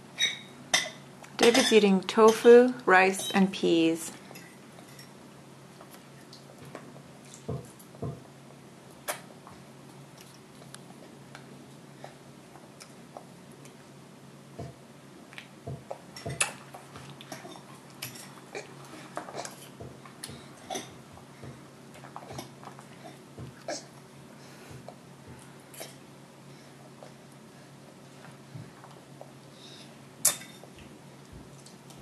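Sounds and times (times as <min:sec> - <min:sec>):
baby chewing mouth smacks: 0:09.0 - 0:09.3, 0:15.3 - 0:20.9.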